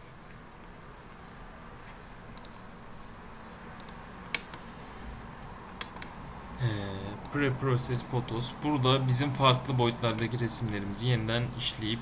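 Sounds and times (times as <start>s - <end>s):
computer clicks: 2.3s - 2.7s, 3.8s - 4.7s, 5.7s - 6.6s, 7.2s - 8.6s.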